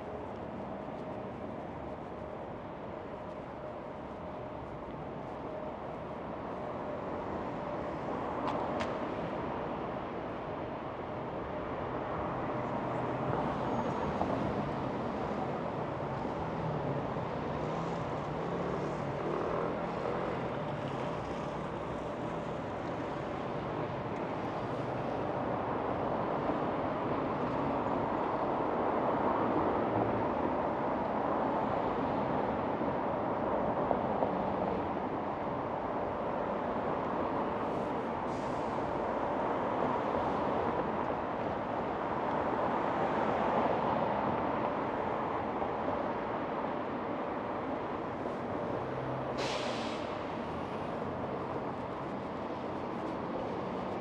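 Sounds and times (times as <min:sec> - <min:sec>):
cars passing: 0:12.3 - 0:32.9, 0:36.3 - 0:54.0.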